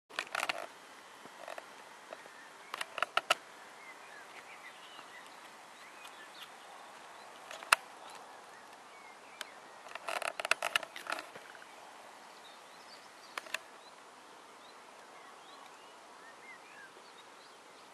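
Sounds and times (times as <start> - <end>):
distant songbirds chirping: 0.1 - 17.9.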